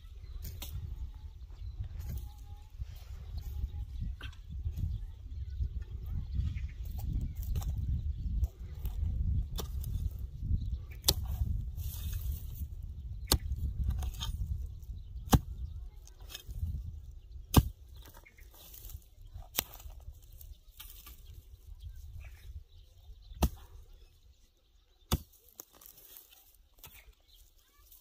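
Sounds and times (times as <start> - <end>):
metal hoe striking stony soil: 0.2 - 1.1, 6.8 - 21.5, 23.3 - 23.8, 25.0 - 28.0
rustling dry brush: 25.2 - 28.0.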